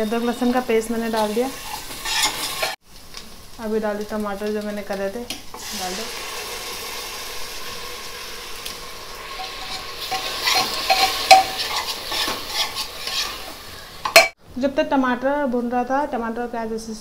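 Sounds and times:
stirring scraping and knocking pot: 0:00.0 - 0:02.8, 0:09.2 - 0:14.4
tomato sizzling in hot oil: 0:00.0 - 0:14.4.

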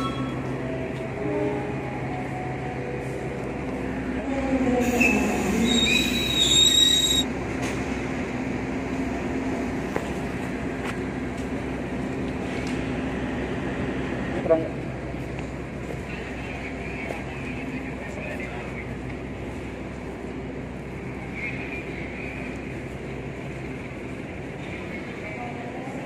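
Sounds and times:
train low drone: 0:00.0 - 0:26.0
train wheels and brakes squealing: 0:04.8 - 0:07.3.

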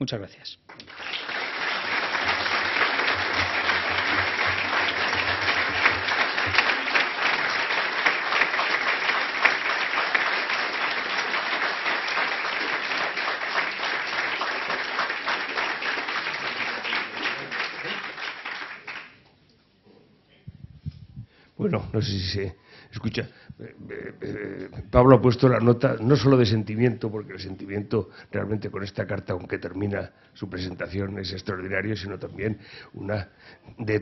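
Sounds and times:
audience applauding: 0:00.7 - 0:19.2.

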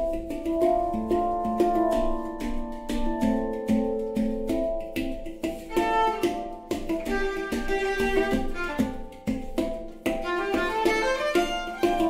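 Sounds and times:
handpans ringing: 0:00.0 - 0:12.0
violin bowing a melody: 0:05.7 - 0:09.3, 0:10.2 - 0:12.0.

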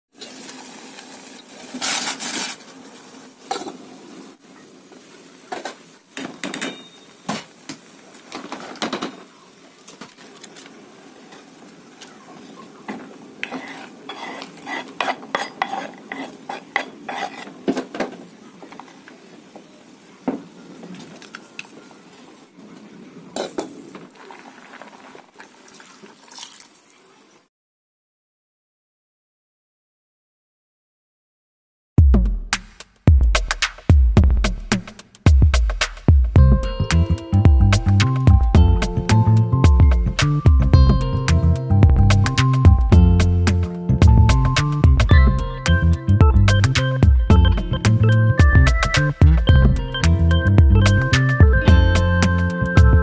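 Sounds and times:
steady low background: 0:36.4 - 0:53.0.

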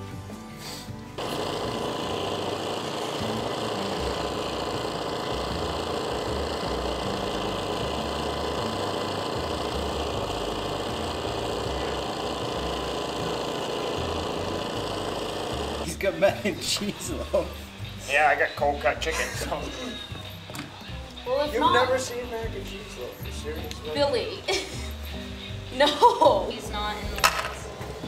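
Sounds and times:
small motor running: 0:01.2 - 0:18.1.

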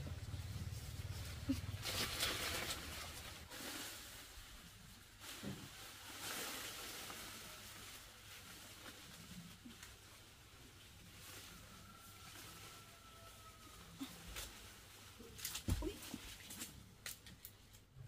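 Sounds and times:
low hum: 0:00.0 - 0:03.5
tree leaves and branches rustling: 0:00.0 - 0:18.0.

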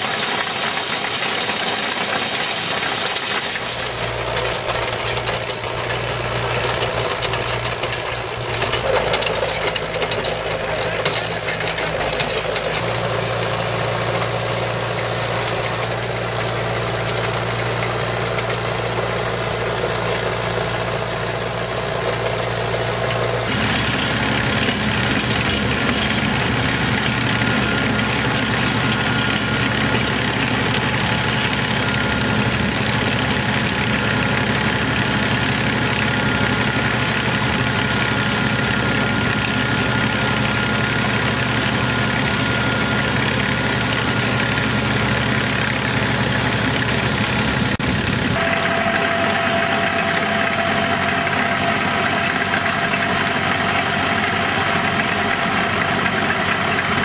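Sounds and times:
tractor engine running: 0:00.0 - 0:57.0
faint high whine: 0:48.4 - 0:54.2.

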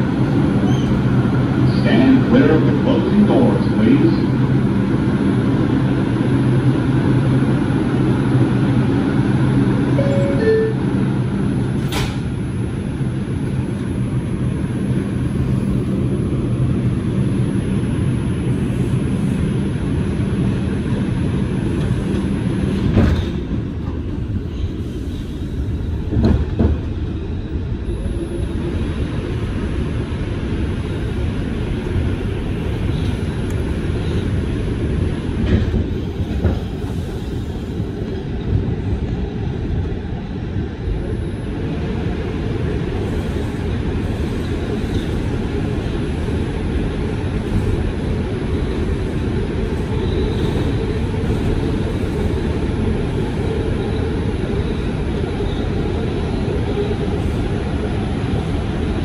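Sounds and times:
subway train rumbling: 0:00.0 - 0:59.0.

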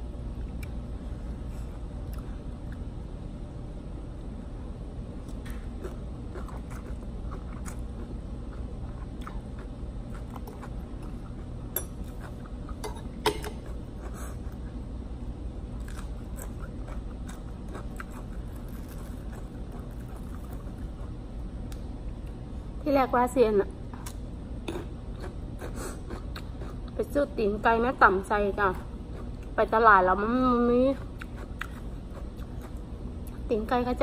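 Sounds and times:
chewing and crunching: 0:05.2 - 0:14.8, 0:15.8 - 0:22.4, 0:23.9 - 0:27.0, 0:28.7 - 0:29.6, 0:30.9 - 0:33.5.

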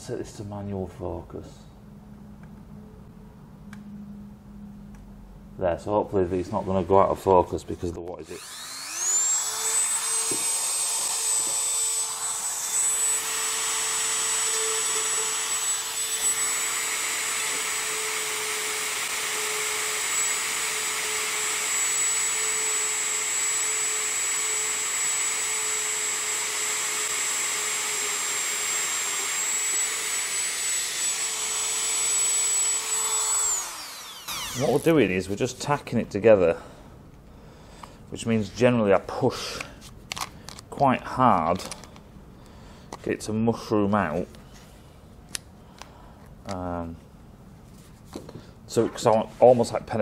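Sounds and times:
rotary tool whine: 0:08.2 - 0:35.0.

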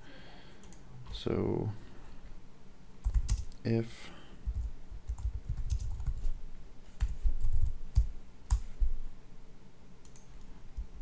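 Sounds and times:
computer keyboard typing: 0:00.6 - 0:01.2, 0:03.0 - 0:03.6, 0:04.4 - 0:06.3, 0:07.0 - 0:08.8, 0:10.0 - 0:10.9.

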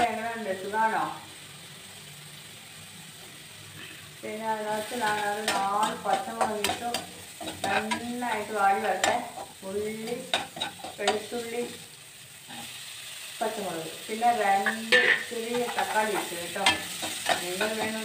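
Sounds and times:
onions sizzling in oil: 0:00.0 - 0:18.0
metal spoon clanking against pan: 0:05.0 - 0:11.3, 0:14.6 - 0:18.0.

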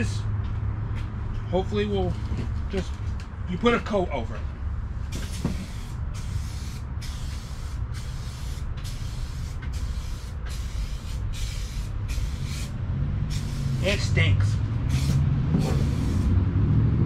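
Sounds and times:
spray can hissing: 0:05.1 - 0:12.7, 0:13.3 - 0:14.0, 0:14.9 - 0:16.4.

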